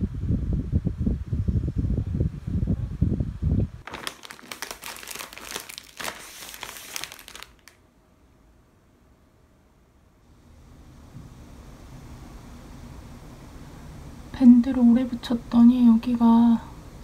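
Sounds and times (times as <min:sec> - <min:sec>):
plastic packaging crinkling: 0:03.8 - 0:07.8.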